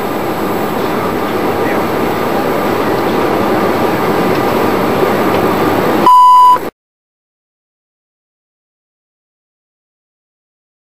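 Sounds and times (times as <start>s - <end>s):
airliner cabin engine noise: 0.0s - 6.7s
single-pitch beep: 6.0s - 6.7s.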